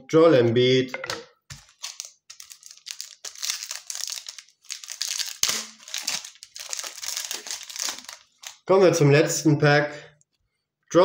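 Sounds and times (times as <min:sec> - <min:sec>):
foil wrapper crinkling and tearing: 0:01.5 - 0:08.7.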